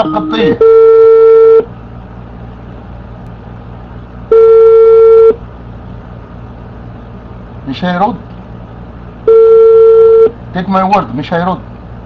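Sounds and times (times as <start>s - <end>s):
telephone ringback tone: 0.0s - 1.7s, 4.3s - 5.4s, 9.3s - 10.3s.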